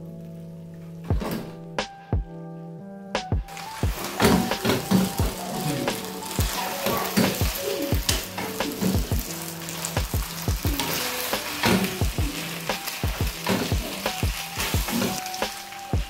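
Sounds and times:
food sizzling in a frying pan: 3.5s - 16.0s
wooden spoon scraping a pan: 3.5s - 16.0s.

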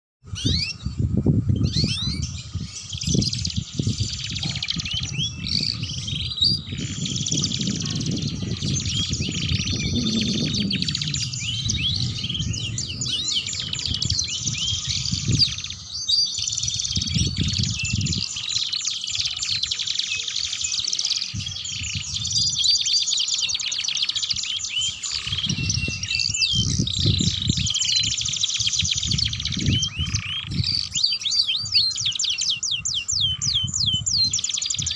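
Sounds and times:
canaries singing trills: 0.2s - 34.9s
low rumbling: 0.3s - 18.2s.

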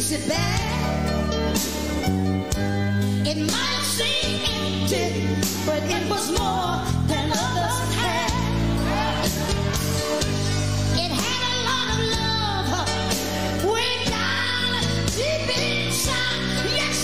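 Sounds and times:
person singing lead vocal: 0.0s - 1.1s, 3.2s - 10.1s, 10.9s - 17.0s
sustained bass notes: 4.0s - 17.0s.

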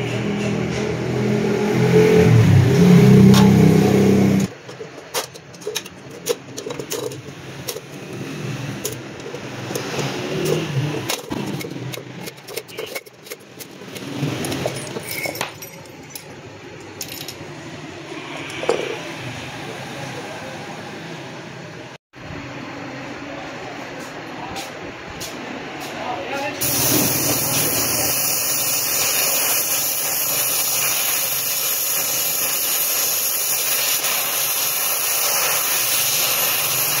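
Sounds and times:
loose spokes rattling: 4.5s - 8.2s, 8.8s - 17.5s.

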